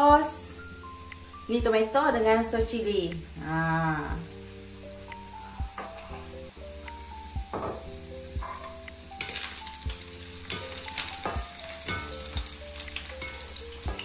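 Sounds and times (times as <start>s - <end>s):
onion sizzling in hot oil: 0.0s - 14.0s
spatula stirring in pan: 8.4s - 14.0s.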